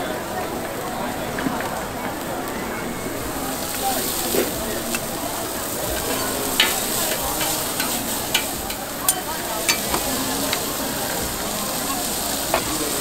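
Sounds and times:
bean sprouts sizzling on griddle: 0.0s - 13.0s
metal spatula clicking and scraping: 6.0s - 10.7s.

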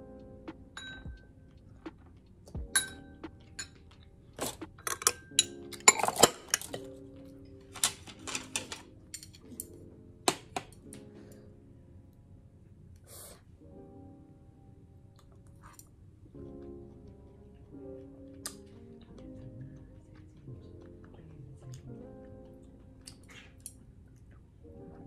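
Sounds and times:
soft background music: 0.0s - 25.0s
utensils clinking on porcelain: 4.4s - 6.9s, 7.7s - 9.6s.

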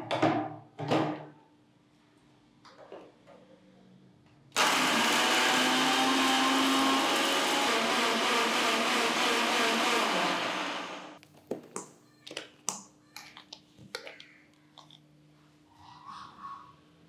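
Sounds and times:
mixer grinder grinding: 4.6s - 11.2s.

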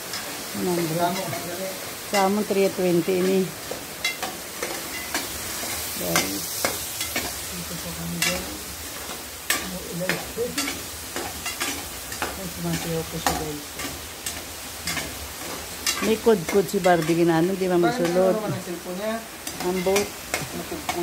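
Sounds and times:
food sizzling in frying pan: 0.0s - 21.0s
metal utensil scraping pan: 4.0s - 7.4s, 8.1s - 21.0s.

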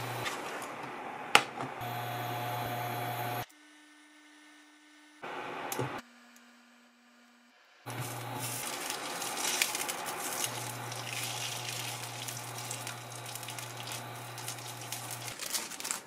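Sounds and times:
induction hob hum: 0.0s - 3.5s, 5.0s - 6.0s, 7.9s - 15.8s
sausages sizzling in oil: 7.9s - 16.0s.

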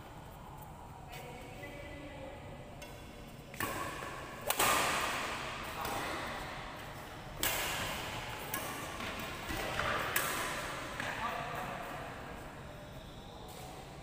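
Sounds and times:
racket hitting shuttlecock: 2.8s - 6.6s, 7.4s - 11.2s.

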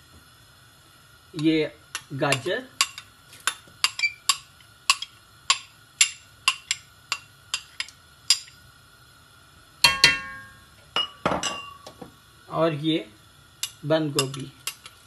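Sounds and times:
metal spoon tapping a bowl: 9.8s - 11.8s
spoon clanking on steel pot: 9.8s - 11.9s, 13.6s - 14.9s.

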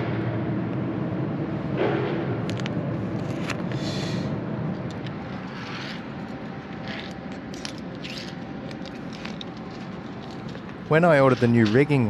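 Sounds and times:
low background rumble: 0.0s - 12.0s
small metal parts clicking: 6.7s - 12.0s.

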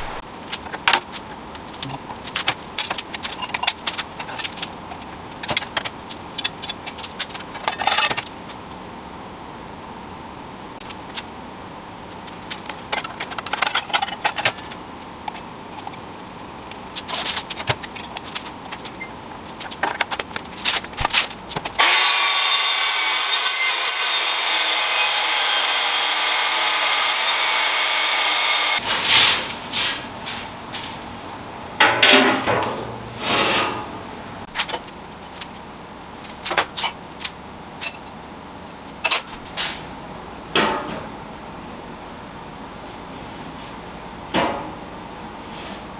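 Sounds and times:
metal clanks and scrapes: 1.8s - 8.4s, 12.2s - 16.0s, 31.8s - 33.9s
power tool running with hiss: 21.8s - 28.8s.

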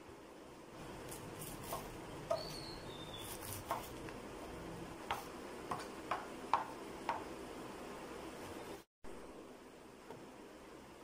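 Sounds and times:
knife shredding cabbage: 1.0s - 4.0s
knife tapping chopping board: 5.1s - 7.2s.

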